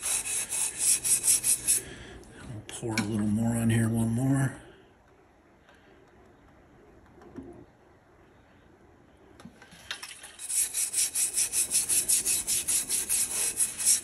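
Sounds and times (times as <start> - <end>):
brush scrubbing ceramic tile: 0.0 - 1.8, 10.4 - 14.0.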